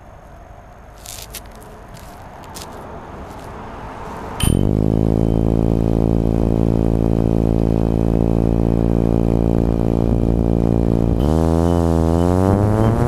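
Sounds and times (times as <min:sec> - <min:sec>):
drone motors humming: 0:04.1 - 0:13.0.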